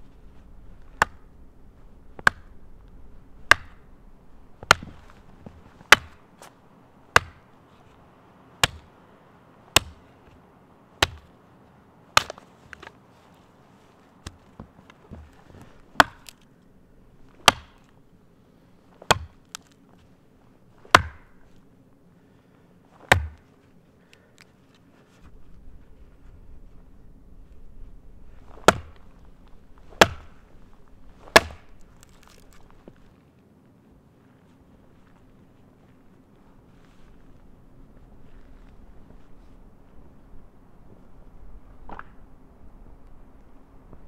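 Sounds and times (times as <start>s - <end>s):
hatchet chopping wood: 1.0s - 1.3s, 2.2s - 2.6s, 3.4s - 3.9s, 4.6s - 5.1s, 5.9s - 6.2s, 7.1s - 7.5s, 8.6s - 8.9s, 9.7s - 10.0s, 11.0s - 11.3s, 12.2s - 12.9s, 16.0s - 16.4s, 17.4s - 17.9s, 19.0s - 19.7s, 20.8s - 21.4s, 23.1s - 23.5s, 28.5s - 29.1s, 29.9s - 30.4s, 31.2s - 32.5s.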